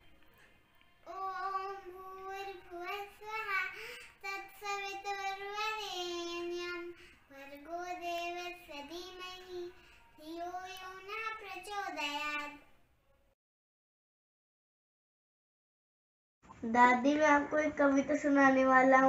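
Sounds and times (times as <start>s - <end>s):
girl singing unaccompanied: 0.0s - 12.8s.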